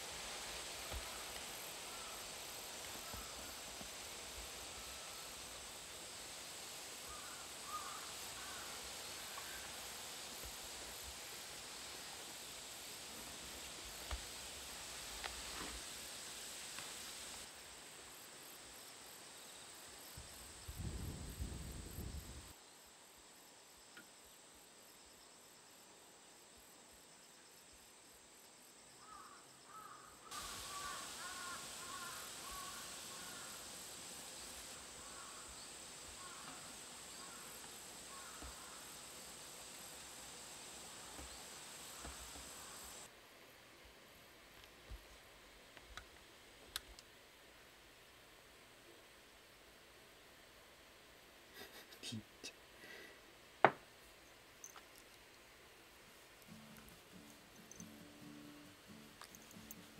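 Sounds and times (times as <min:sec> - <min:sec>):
insect trilling: 0:00.5 - 0:15.4, 0:28.9 - 0:43.1.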